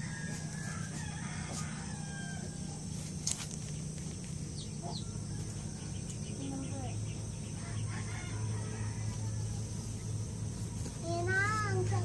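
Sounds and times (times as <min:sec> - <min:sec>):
rooster crowing faintly: 0:00.0 - 0:03.0, 0:07.6 - 0:10.0
steady low hum: 0:00.0 - 0:12.0.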